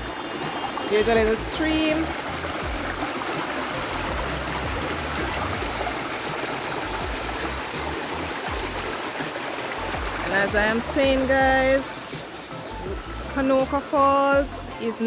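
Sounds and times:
stream flowing water: 0.0s - 15.0s.

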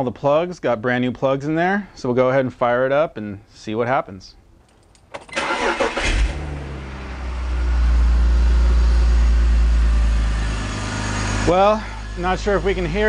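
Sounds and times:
car engine starter cranking: 4.6s - 6.8s
car engine idling: 5.3s - 13.0s.

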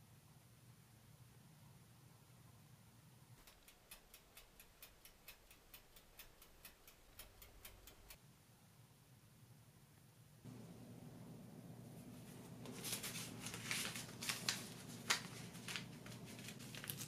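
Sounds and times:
faint low oven hum: 0.0s - 17.0s
mechanical dial timer ticking: 3.4s - 8.2s.

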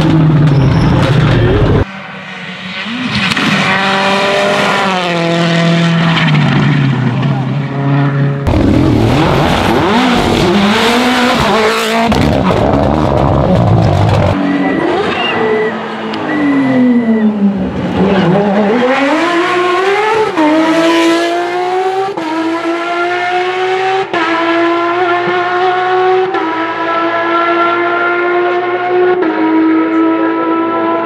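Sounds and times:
high-revving engine: 0.0s - 31.0s
rally car engine revving: 0.0s - 31.0s.

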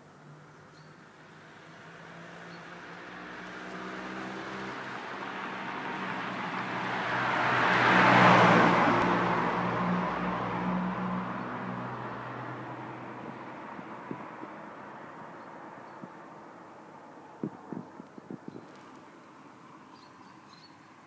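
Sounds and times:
vehicle passing by: 1.2s - 20.5s.

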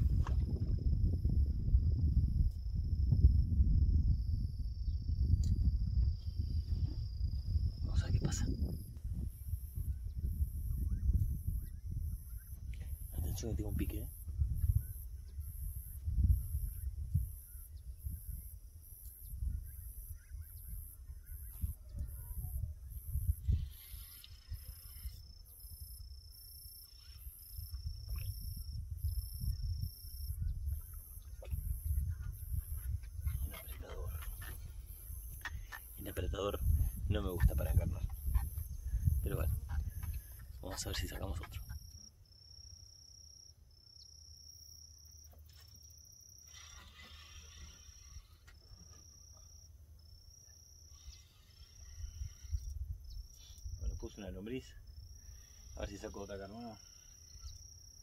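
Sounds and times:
wind buffeting microphone: 0.0s - 26.2s, 27.5s - 41.9s
insects pulsing: 0.0s - 58.0s
fishing reel whine: 23.1s - 28.6s, 46.3s - 49.4s, 50.7s - 53.8s, 55.2s - 58.0s.

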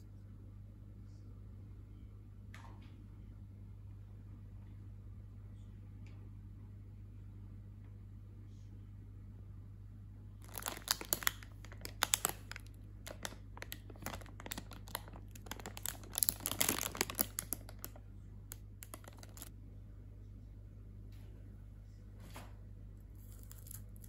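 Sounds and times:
plastic bag crinkling: 10.4s - 19.5s, 23.2s - 24.0s.

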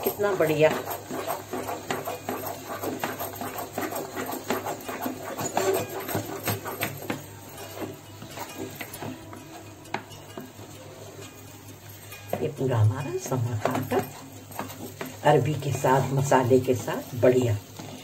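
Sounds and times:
spatula slapping sticky dough: 0.0s - 10.7s.

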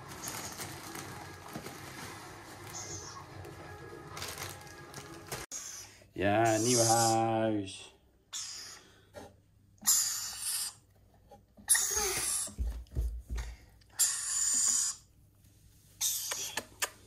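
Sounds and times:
lorikeet chick hissing calls: 5.5s - 7.2s, 8.3s - 8.9s, 9.8s - 10.8s, 14.0s - 15.0s.

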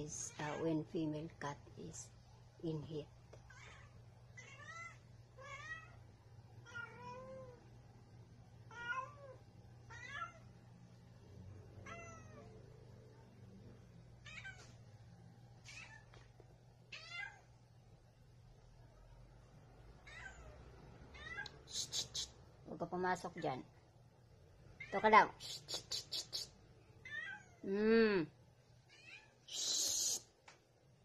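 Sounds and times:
cat meowing: 3.5s - 6.0s, 6.6s - 7.6s, 8.7s - 10.5s, 11.8s - 12.6s, 14.2s - 14.7s, 16.9s - 17.5s, 20.0s - 21.7s, 27.0s - 27.6s.

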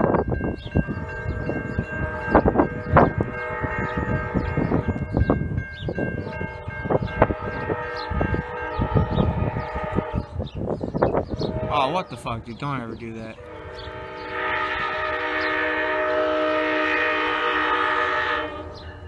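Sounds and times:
crossing warning bell ringing: 0.0s - 19.0s.

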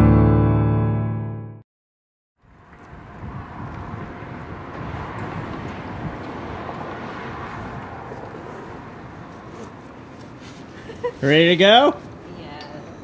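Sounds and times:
wind buffeting microphone: 2.5s - 9.2s.

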